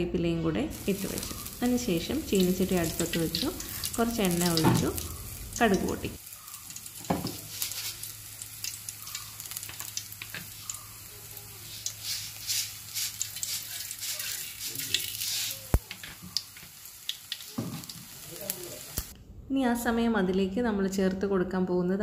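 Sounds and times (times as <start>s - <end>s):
mustard seeds spluttering: 0.7s - 11.0s
hot oil sizzling and crackling: 0.7s - 19.2s.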